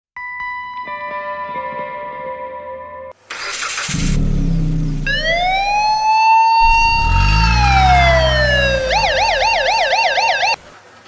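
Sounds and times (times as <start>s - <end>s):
car engine running: 3.3s - 10.0s
police siren: 4.9s - 10.6s.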